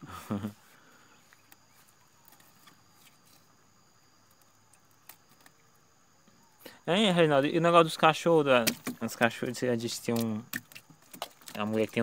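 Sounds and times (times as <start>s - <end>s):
man speaking: 6.9s - 10.5s, 11.5s - 12.0s.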